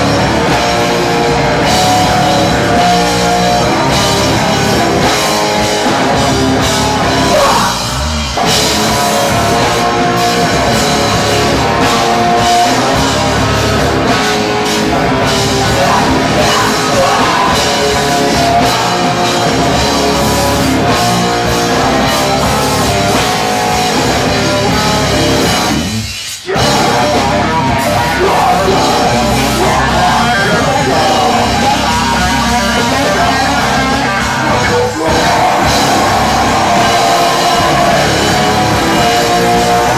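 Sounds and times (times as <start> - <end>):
bass guitar: 0.0 - 39.9
drum kit: 0.0 - 39.9
shouted vocals: 5.8 - 8.2, 9.2 - 21.0, 26.4 - 39.9.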